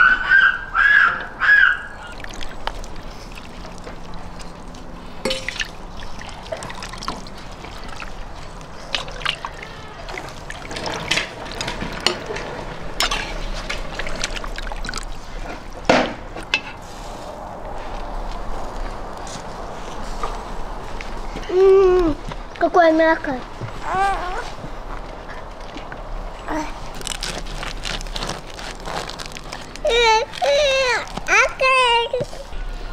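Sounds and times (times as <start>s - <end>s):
broth dribbling and splashing: 1.9s - 18.9s, 26.8s - 32.5s.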